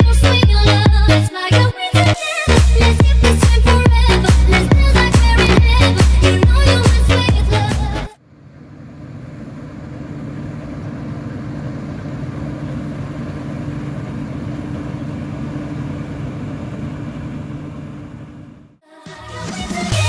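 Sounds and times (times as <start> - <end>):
combine harvester engine droning: 3.6 - 18.8.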